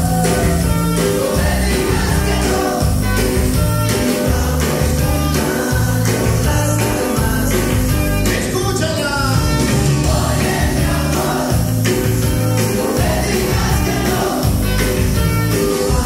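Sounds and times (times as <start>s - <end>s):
pulsing bass line: 0.0s - 8.4s, 9.2s - 16.0s
loud dance music with singer: 0.0s - 16.0s.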